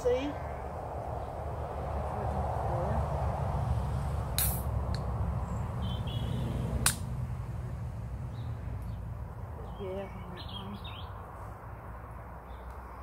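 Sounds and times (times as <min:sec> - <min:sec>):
sharp clicks: 0:04.4 - 0:05.1, 0:06.8 - 0:07.1.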